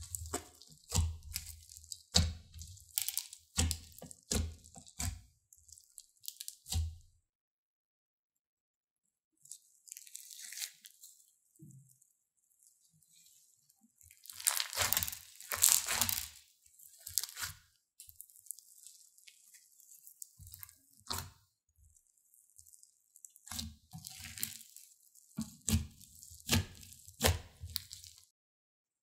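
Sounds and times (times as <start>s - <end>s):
slime popping: 0.0s - 5.2s, 14.1s - 17.5s, 23.3s - 28.2s
slime squishing and crackling: 0.0s - 7.0s, 9.4s - 28.3s.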